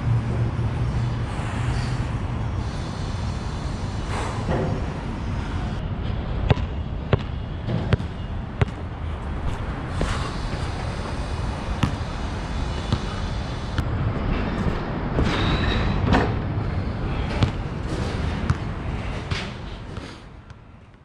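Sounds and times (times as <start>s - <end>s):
basketball bouncing on court: 6.5s - 8.9s, 11.7s - 13.2s, 17.3s - 18.7s.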